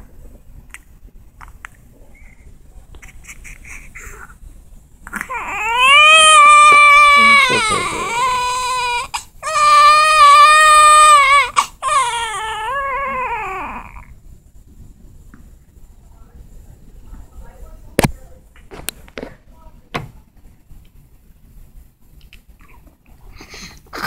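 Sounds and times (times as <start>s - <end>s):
newborn baby crying: 5.0s - 14.2s.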